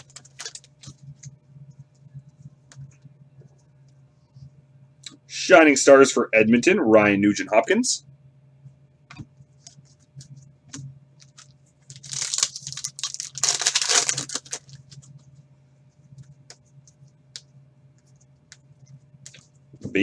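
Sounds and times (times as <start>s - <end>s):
foil wrapper ripping: 0.0s - 0.9s, 11.3s - 15.0s
cards clicking and rustling: 0.0s - 1.0s.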